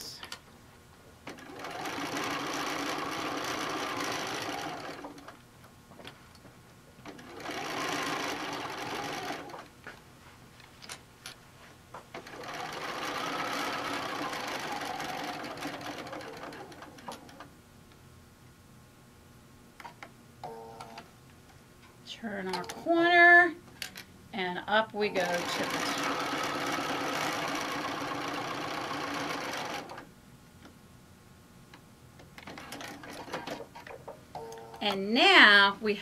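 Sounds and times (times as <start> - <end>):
sewing machine stitching: 1.3 - 5.4, 7.0 - 9.7, 12.2 - 17.5, 25.2 - 30.0, 32.4 - 34.0.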